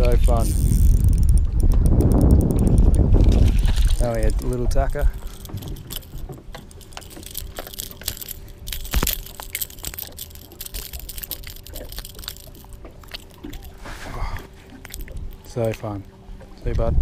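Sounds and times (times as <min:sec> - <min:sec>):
faint steady hum: 0:00.0 - 0:17.0
clicks and knocks of handling: 0:03.8 - 0:16.5.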